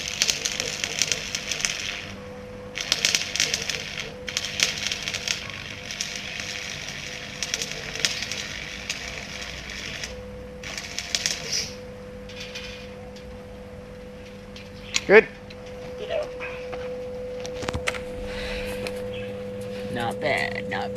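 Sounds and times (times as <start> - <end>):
welding arc crackling: 0.0 - 15.8.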